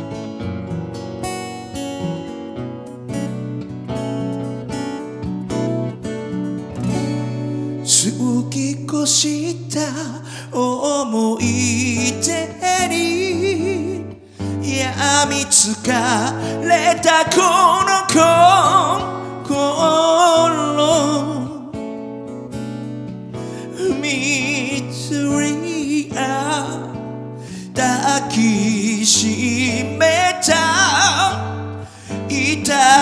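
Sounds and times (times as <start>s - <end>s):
acoustic guitars playing: 0.0s - 33.0s
person singing with vibrato: 7.8s - 21.9s, 23.4s - 33.0s.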